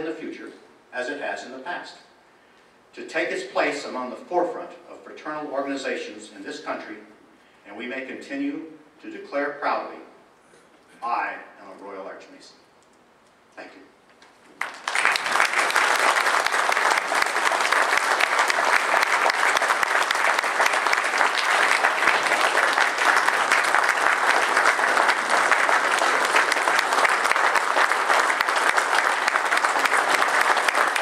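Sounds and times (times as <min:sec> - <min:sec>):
audience applauding: 0:14.6 - 0:31.0.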